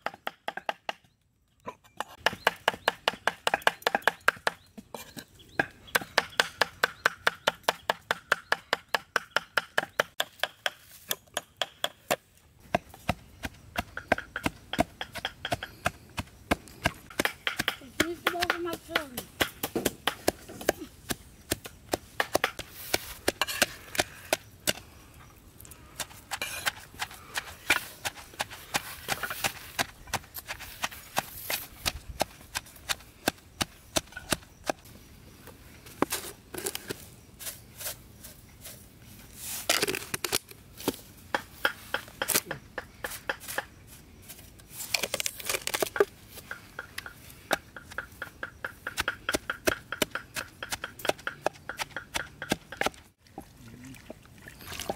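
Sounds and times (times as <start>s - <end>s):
knife chopping on wooden board: 13.8s - 24.1s
rustling scrapes: 35.9s - 40.2s.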